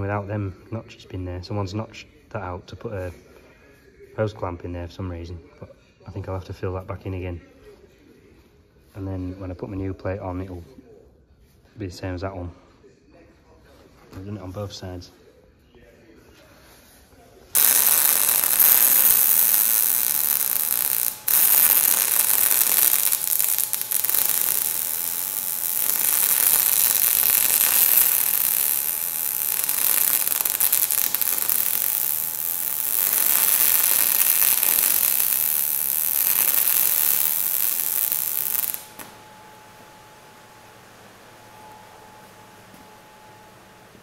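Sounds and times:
electric arc welding hiss: 17.6 - 39.2.

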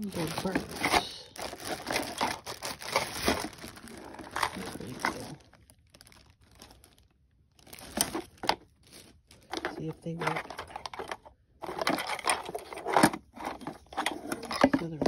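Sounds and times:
cardboard box rustling: 0.0 - 7.0, 7.6 - 15.0
plastic bag crinkling: 0.0 - 15.0.

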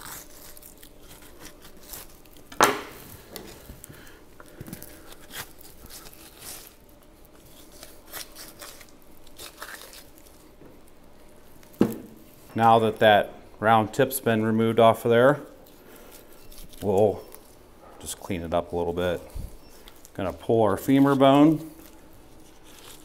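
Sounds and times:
knife tearing through meat: 0.0 - 2.5, 4.8 - 10.4, 15.6 - 17.4.

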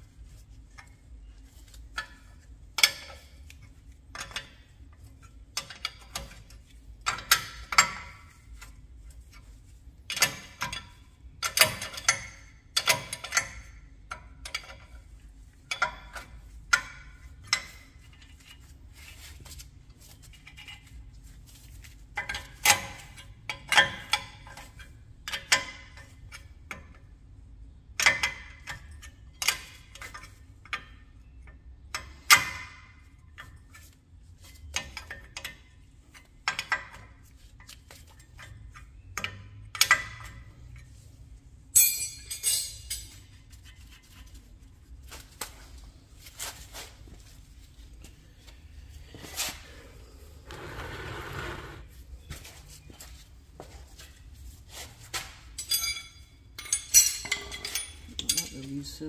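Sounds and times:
hand tools clinking on metal: 41.7 - 43.3, 55.6 - 59.0.

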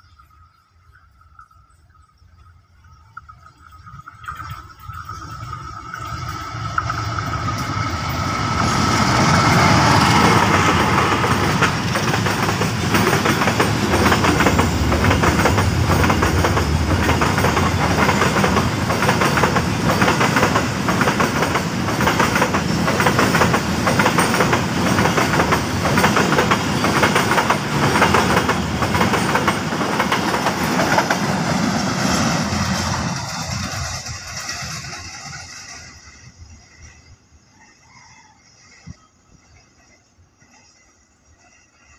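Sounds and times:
diesel locomotive passing: 4.2 - 41.9
train wheels clacking on rail joints: 5.5 - 36.1.

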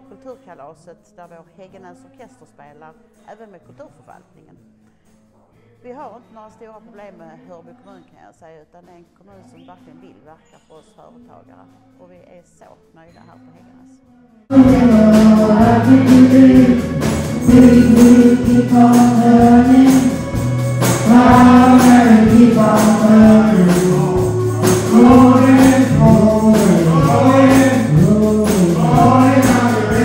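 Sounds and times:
group singing: 14.5 - 30.0
percussion beat: 14.5 - 30.0.

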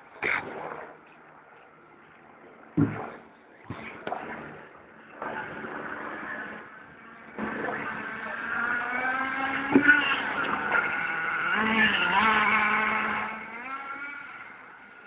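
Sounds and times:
model buggy engine revving: 5.2 - 15.0.

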